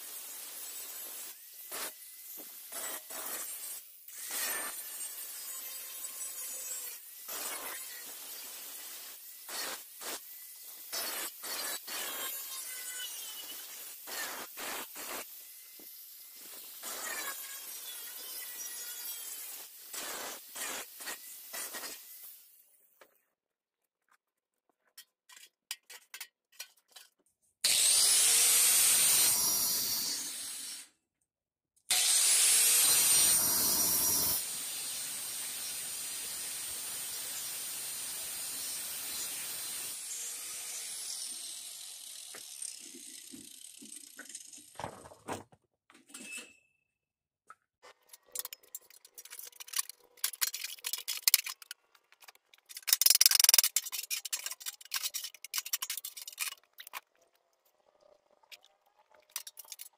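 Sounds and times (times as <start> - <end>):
angle grinder cutting steel: 27.6 - 30.9, 31.9 - 44.7
metal clicks and clatter: 47.9 - 57.1.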